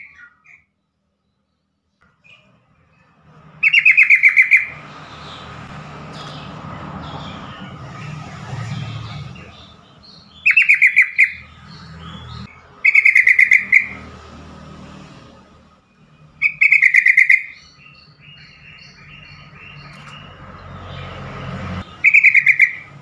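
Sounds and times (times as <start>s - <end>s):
bird chattering calls: 3.6s - 5.5s, 6.1s - 14.0s, 16.4s - 20.4s, 21.8s - 23.0s.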